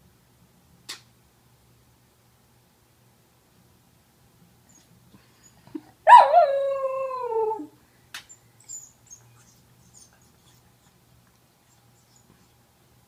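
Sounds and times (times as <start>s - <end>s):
sharp click: 0.9s - 1.1s
dog howling: 6.1s - 7.7s.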